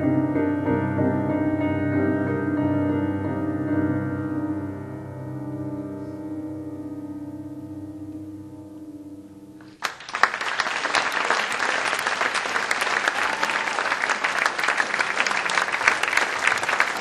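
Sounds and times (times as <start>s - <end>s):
audience applauding: 9.6s - 17.0s.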